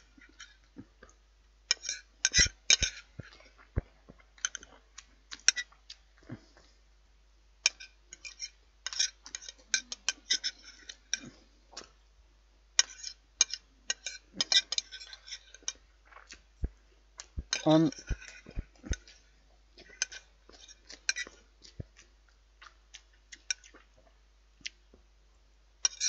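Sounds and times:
cutlery scraping a china plate: 1.7 - 3.1, 7.7 - 11.3, 12.8 - 15.8, 17.5 - 19.2, 19.8 - 21.4.

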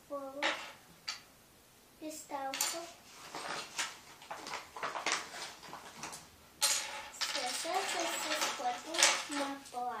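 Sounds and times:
child's voice: 0.0 - 0.5, 2.0 - 3.0, 7.3 - 10.0
plastic toys rattling: 2.4 - 10.0.

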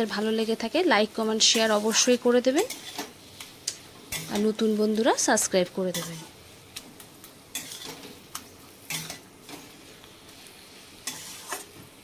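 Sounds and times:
hot pan hissing: 0.0 - 12.0
metal spatula scraping pan: 1.5 - 3.1, 7.5 - 8.1, 11.0 - 11.8.

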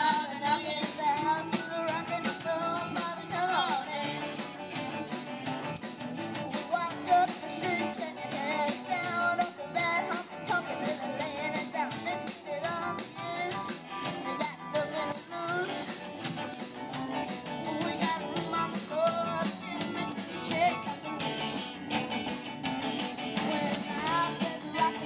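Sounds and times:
woman singing: 0.0 - 4.4, 6.5 - 15.9, 17.6 - 19.7, 20.4 - 21.3, 23.4 - 25.0
live rock band playing: 0.0 - 25.0.

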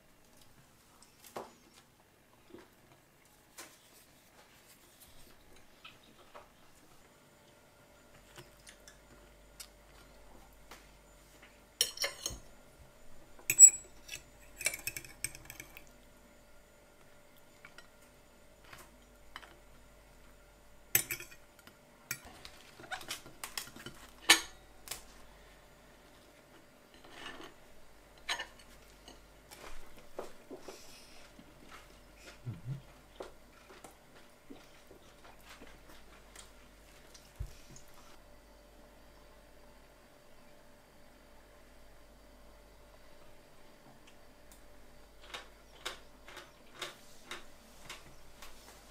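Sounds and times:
fork clinking and scraping plates: 11.8 - 12.4, 13.5 - 15.8, 21.0 - 21.4, 26.9 - 27.6.

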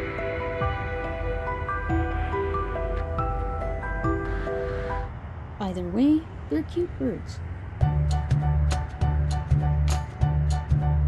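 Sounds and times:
calm instrumental music: 0.0 - 5.1, 7.8 - 11.0
low steady rumble: 0.0 - 11.0.

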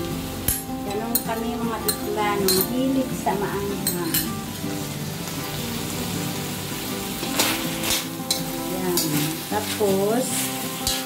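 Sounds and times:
meat sizzling in a wok: 0.0 - 11.0
metal spatula scraping and stirring: 7.2 - 11.0.

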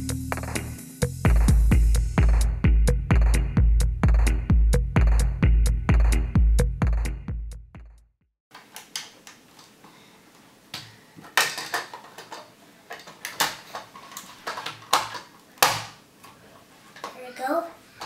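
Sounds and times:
plastic bricks clicking together: 10.8 - 16.0.

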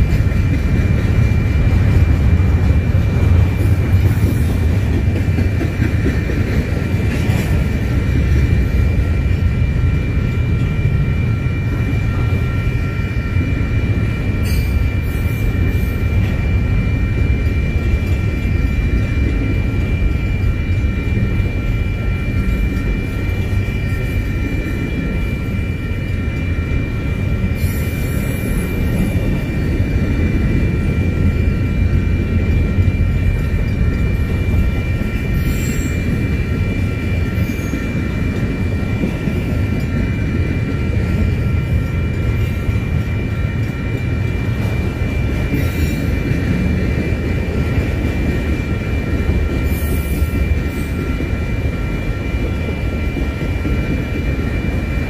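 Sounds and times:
high-pitched whine: 0.0 - 55.0
train wheels rumbling on rail: 0.0 - 55.0.

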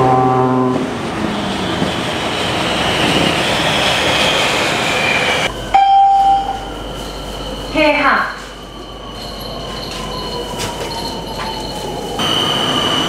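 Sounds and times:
train running past: 0.0 - 13.0
loud steady high tone: 4.4 - 13.0.

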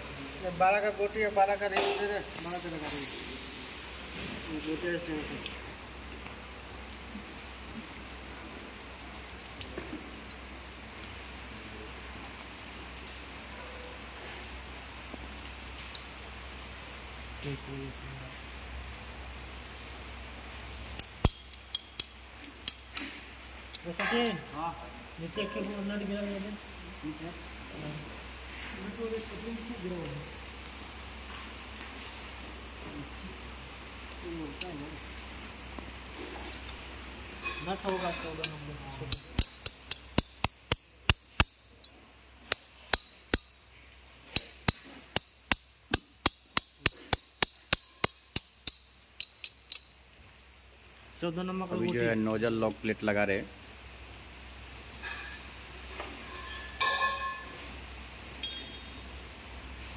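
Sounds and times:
faint hiss: 0.0 - 59.9
spanner clinking on metal: 21.0 - 23.1, 37.4 - 43.6, 44.4 - 49.9, 58.4 - 58.9.

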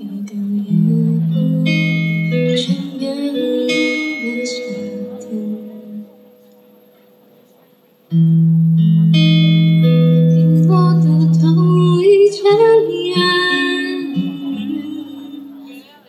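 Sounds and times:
woman singing into a microphone: 0.0 - 6.2, 10.4 - 15.8
acoustic guitar: 0.0 - 16.0.

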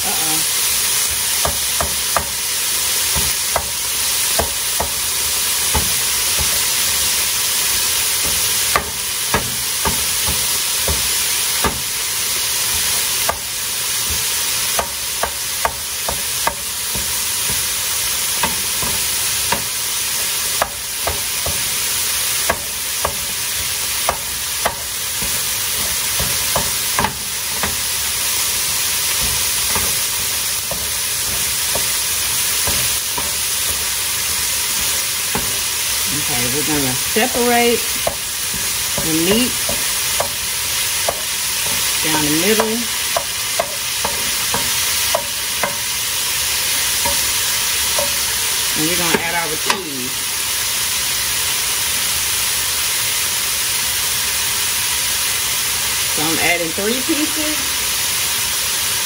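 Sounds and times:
meat sizzling in a frying pan: 0.0 - 59.0
wooden spoon knocking on a pan: 1.4 - 2.4, 3.1 - 3.8, 4.4 - 5.0, 5.7 - 7.0, 8.2 - 11.9, 14.8 - 17.7, 18.4 - 19.7, 20.6 - 21.7, 22.4 - 27.9, 28.6 - 33.9, 34.7 - 35.7, 37.8 - 46.0, 47.0 - 48.2.

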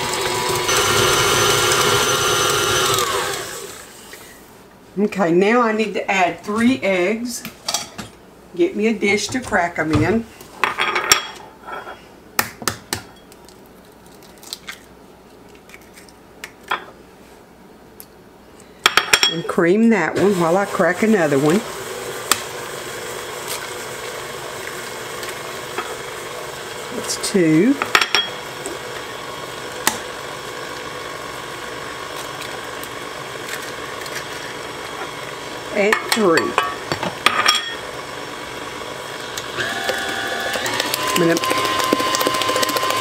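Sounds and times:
stand mixer beating batter: 0.0 - 3.8, 20.2 - 27.8, 28.4 - 43.0
egg cracking: 12.7 - 16.6, 39.4 - 43.0.

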